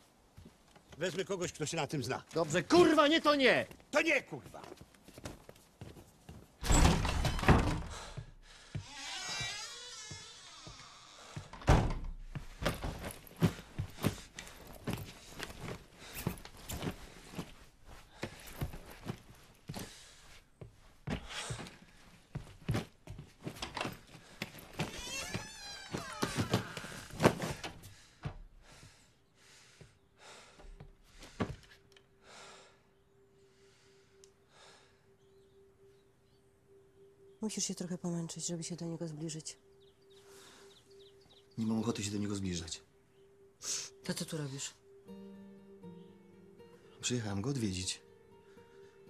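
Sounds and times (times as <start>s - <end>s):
person breathing heavily and sighing: 7.6s - 9.2s, 19.7s - 22.3s, 26.2s - 35.2s
long pitch-bending creak: 8.7s - 11.7s, 24.8s - 27.1s.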